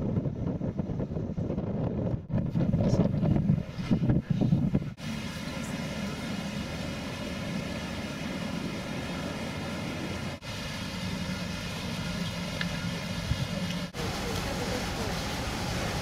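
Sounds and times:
engine drone: 0:04.9 - 0:16.0.

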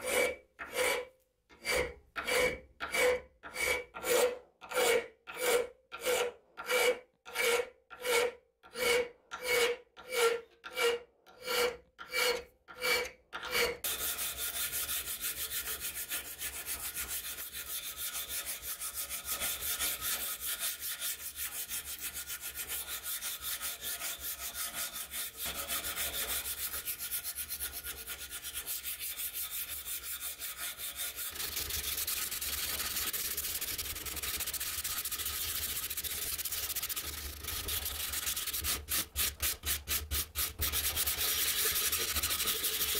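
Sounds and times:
hand file scraping steel: 0:00.0 - 0:42.9
hand sanding steel: 0:13.8 - 0:42.9.

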